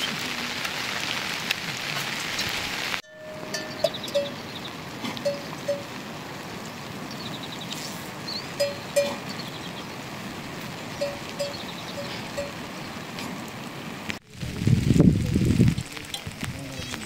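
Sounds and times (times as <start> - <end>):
steady hiss: 0.0 - 17.0
livestock bells clanking: 3.0 - 6.0, 8.6 - 9.6, 11.0 - 12.7.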